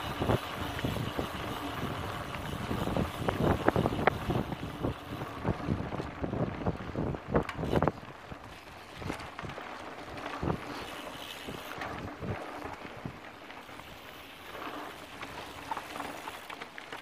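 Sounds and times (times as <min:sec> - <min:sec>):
wind rushing over microphone: 0:00.0 - 0:08.1.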